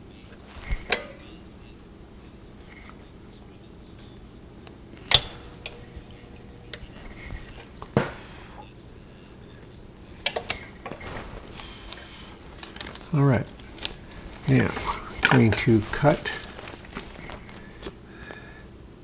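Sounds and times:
faint steady hum: 0:00.0 - 0:19.0
clicks and knocks: 0:05.0 - 0:06.9
heat sealer arm clacking: 0:05.0 - 0:08.1
plastic bag crinkling: 0:10.9 - 0:18.0.

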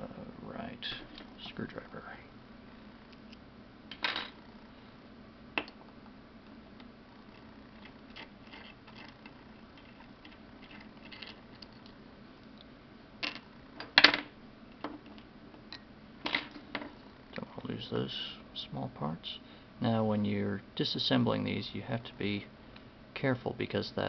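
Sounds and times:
screwdriver clicking and scraping: 0:07.3 - 0:11.9.

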